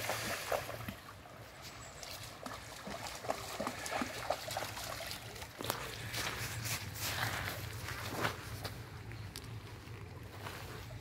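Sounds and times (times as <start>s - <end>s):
dog splashing through water: 0.0s - 1.4s, 2.0s - 6.1s
stream trickling: 0.0s - 10.4s.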